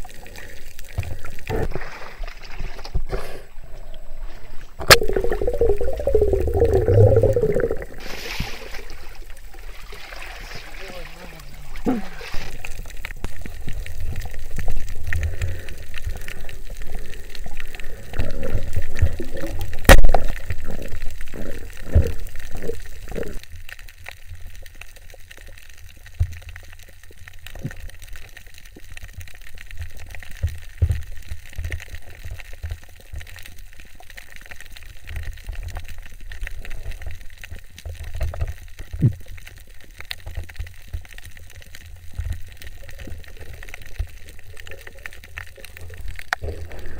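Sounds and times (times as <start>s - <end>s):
underwater rumble and sloshing: 0.0s - 46.9s
speargun firing crack: 4.8s - 5.4s.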